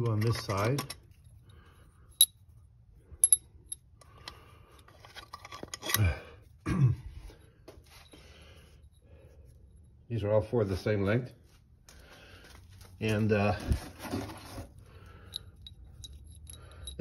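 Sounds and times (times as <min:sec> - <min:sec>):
metal bolts clinking: 0:00.0 - 0:01.4, 0:03.2 - 0:06.0, 0:15.2 - 0:17.0.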